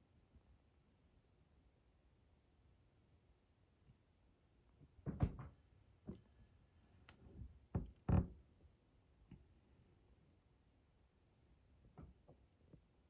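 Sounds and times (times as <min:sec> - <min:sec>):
knocks and thumps: 0:05.0 - 0:06.2.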